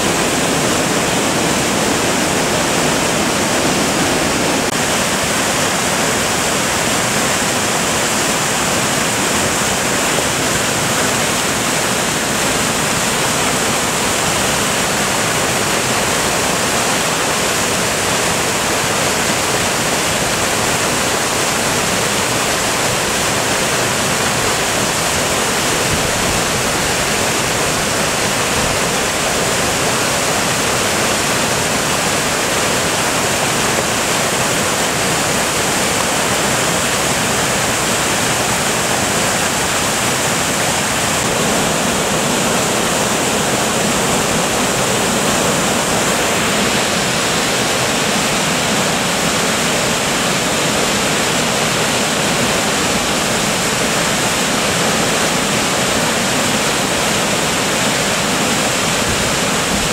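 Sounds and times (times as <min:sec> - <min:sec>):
water rushing over weir: 0:00.0 - 0:59.9.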